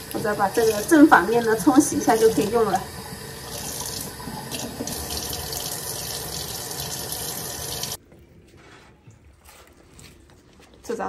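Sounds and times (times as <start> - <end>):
tap water running over leaves: 0.0 - 8.0.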